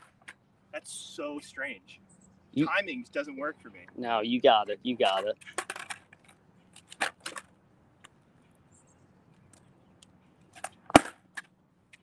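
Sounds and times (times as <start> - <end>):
skateboard clacking on ground: 5.1 - 7.5, 10.6 - 12.0.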